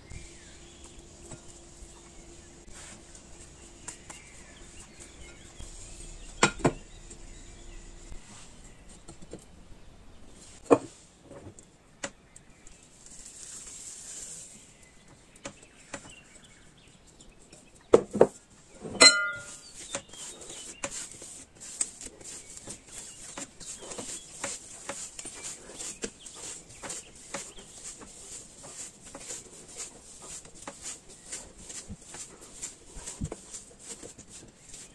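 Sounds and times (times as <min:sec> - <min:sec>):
glass bowl ringing: 0:19.0 - 0:19.6
sticky dough crackling: 0:19.4 - 0:34.9.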